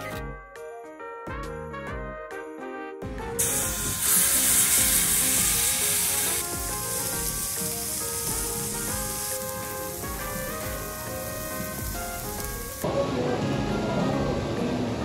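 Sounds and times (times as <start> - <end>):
chicken sizzling on a grill: 3.4 - 12.8.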